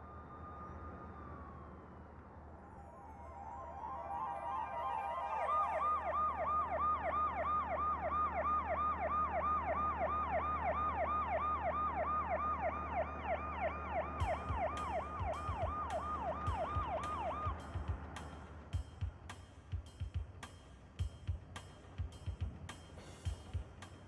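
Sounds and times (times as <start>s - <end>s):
police siren yelping: 3.2s - 17.6s
drum beat with cymbal ticks: 14.2s - 24.0s.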